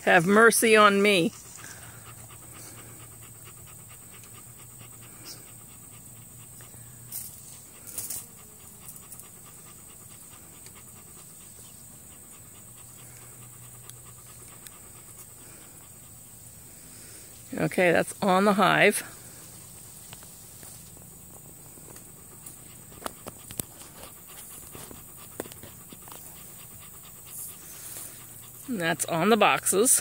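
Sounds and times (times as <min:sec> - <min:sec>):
dog panting: 0:00.2 - 0:30.0.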